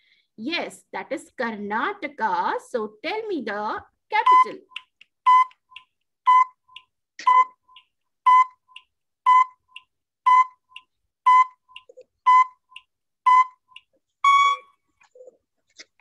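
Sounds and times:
timer beeping: 0:04.2 - 0:14.8
long final beep: 0:14.2 - 0:14.7.

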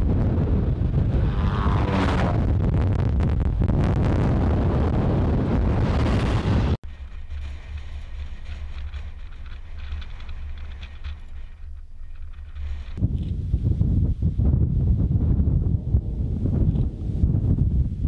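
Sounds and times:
low wind rumble: 0:00.0 - 0:18.0
wind noise on microphone: 0:00.0 - 0:18.0.

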